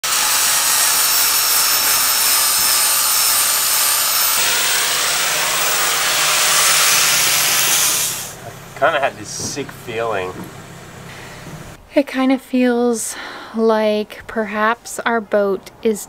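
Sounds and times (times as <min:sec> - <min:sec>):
power tool whooshing: 0:00.0 - 0:11.8
high-pitched whine: 0:00.1 - 0:11.0.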